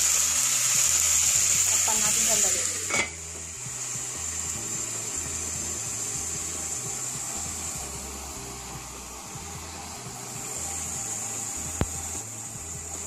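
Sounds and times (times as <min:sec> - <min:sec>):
clams sizzling in hot oil: 0:00.0 - 0:13.0
steel lid clinking onto pot: 0:02.9 - 0:03.2.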